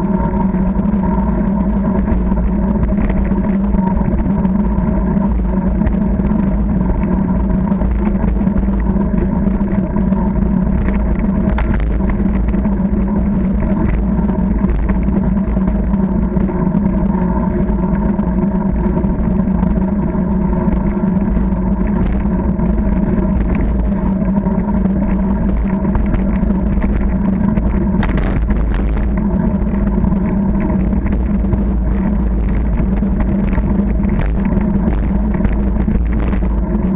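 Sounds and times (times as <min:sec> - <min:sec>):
bicycle rattles and clicks: 0:00.0 - 0:36.9
steady hum: 0:00.0 - 0:36.9
wind noise: 0:00.0 - 0:36.9
tyre rumble on tarmac: 0:21.8 - 0:36.9.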